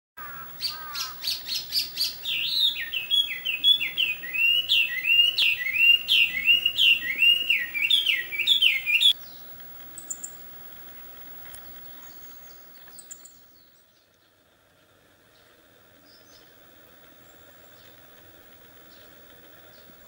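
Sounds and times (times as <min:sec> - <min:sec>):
bird singing loudly: 0:00.2 - 0:09.4.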